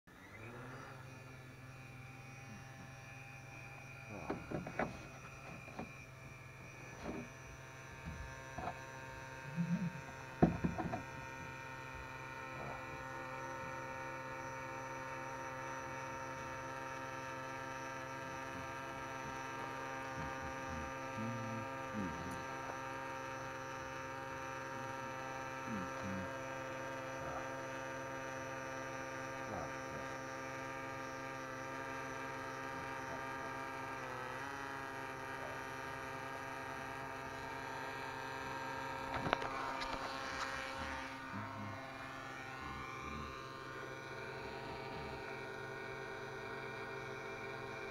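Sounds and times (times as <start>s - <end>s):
quadcopter motors humming: 0.1s - 47.9s
knocks: 10.4s - 11.0s.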